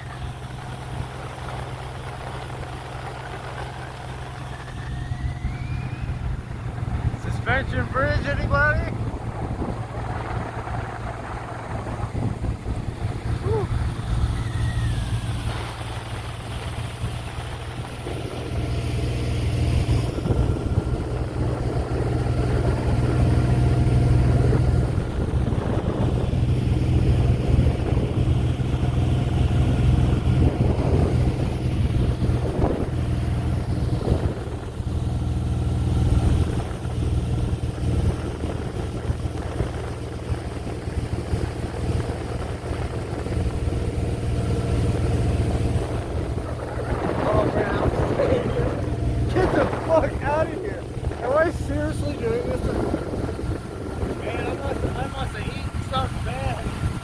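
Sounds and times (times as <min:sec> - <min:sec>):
motorboat engine humming: 0:00.0 - 0:57.0.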